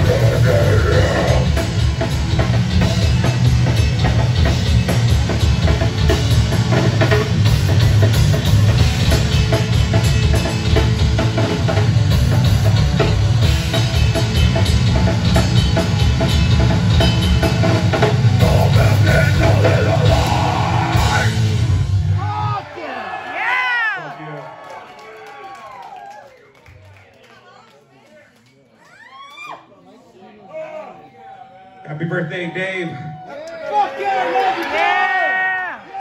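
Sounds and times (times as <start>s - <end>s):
heavy rock band playing: 0.0s - 22.7s.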